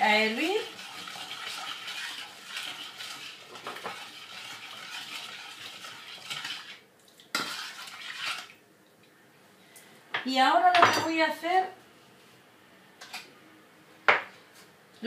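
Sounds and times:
metal spoon stirring in a pot: 0:00.2 - 0:08.5.

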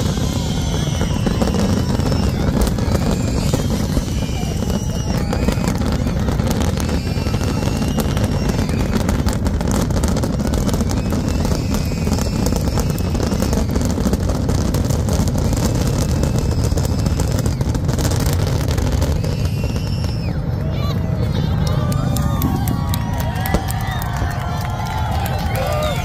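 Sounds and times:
fireworks bursting and crackling: 0:00.0 - 0:26.0.

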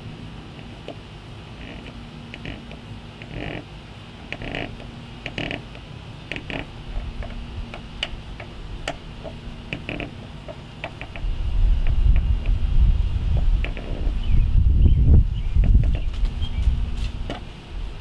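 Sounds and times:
plastic fin creaking and squeaking: 0:01.6 - 0:03.7, 0:04.3 - 0:12.6, 0:13.3 - 0:14.3, 0:15.6 - 0:17.4
wind buffeting microphone: 0:11.0 - 0:18.0.

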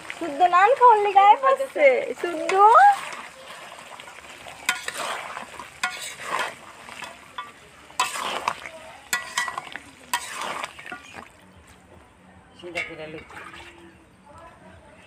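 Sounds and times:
food sizzling: 0:00.0 - 0:11.5
spatula scraping metal pan: 0:02.2 - 0:11.2
spatula clanking against pan: 0:04.6 - 0:05.2, 0:05.8 - 0:11.1.

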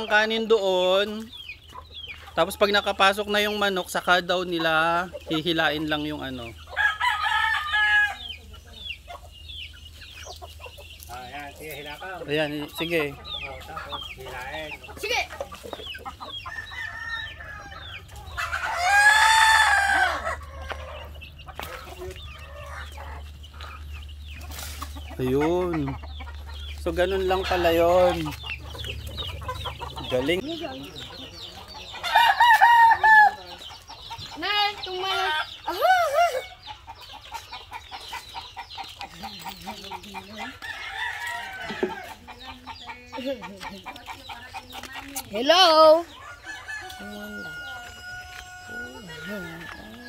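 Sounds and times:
chickens clucking: 0:00.0 - 0:50.0
rooster crowing: 0:06.8 - 0:08.3, 0:16.5 - 0:20.8, 0:32.0 - 0:33.5, 0:46.2 - 0:50.0.

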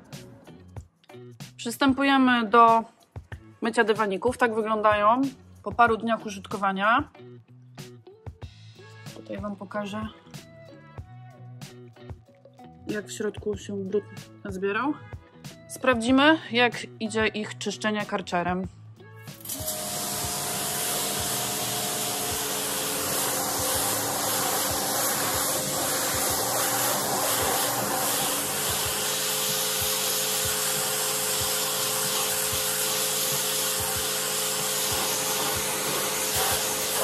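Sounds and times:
pressure washer spraying water: 0:19.3 - 0:37.0
pump motor hum: 0:19.4 - 0:37.0.

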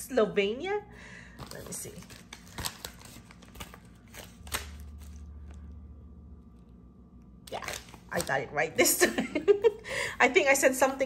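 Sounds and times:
paper crinkling: 0:01.4 - 0:05.6
low hum: 0:04.2 - 0:11.0.

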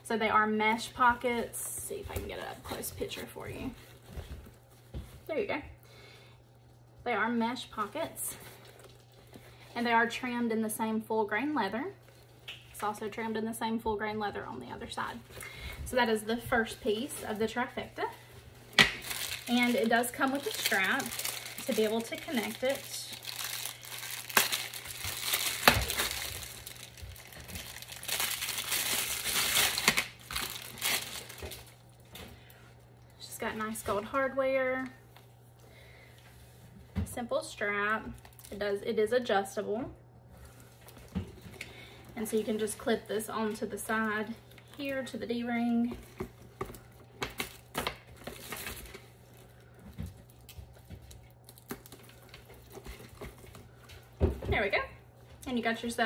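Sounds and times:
plastic packaging crinkling: 0:07.7 - 0:09.8, 0:16.6 - 0:33.1, 0:38.2 - 0:38.6, 0:40.5 - 0:54.2.

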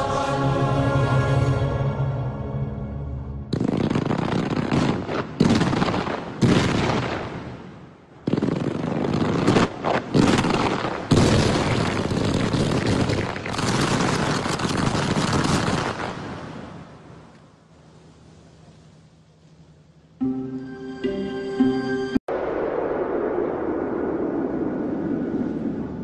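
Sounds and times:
fireworks crackling bangs: 0:03.5 - 0:16.8.

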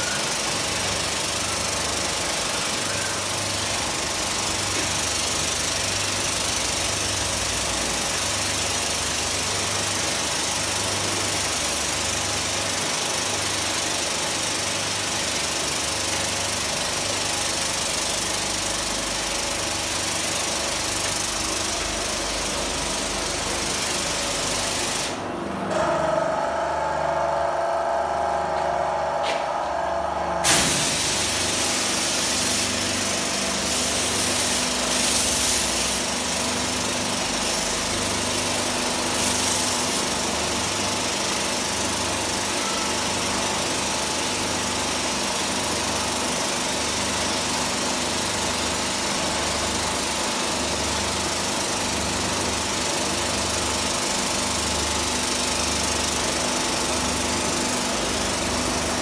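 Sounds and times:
paint sprayer pump pulsing: 0:00.0 - 0:59.0
steady hum: 0:25.0 - 0:34.9
paint spraying hiss: 0:30.4 - 0:36.2.

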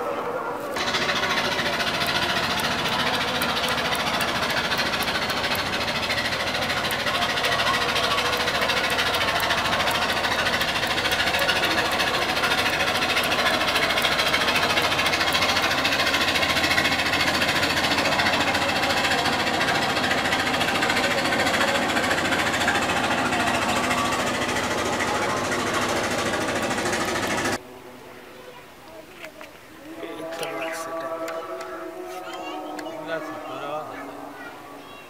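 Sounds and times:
rapid mechanical clatter: 0:00.8 - 0:27.6.

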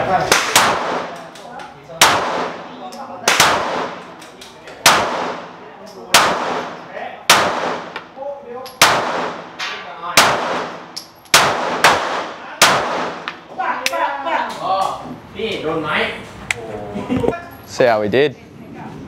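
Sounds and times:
fainter gunshots: 0:00.3 - 0:01.3, 0:02.0 - 0:02.7, 0:03.3 - 0:04.2, 0:04.8 - 0:05.5, 0:06.1 - 0:08.0, 0:08.8 - 0:13.3
pistol shots: 0:00.3 - 0:01.4, 0:02.0 - 0:08.1, 0:08.7 - 0:13.4.

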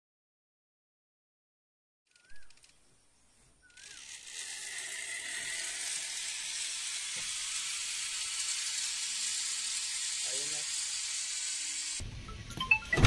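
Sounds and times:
zip line pulley hissing on cable: 0:03.6 - 0:12.0.

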